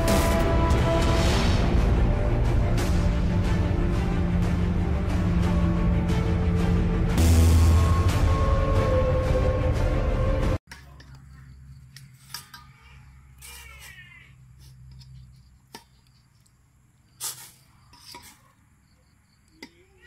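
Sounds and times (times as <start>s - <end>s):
music: 0.0s - 10.6s.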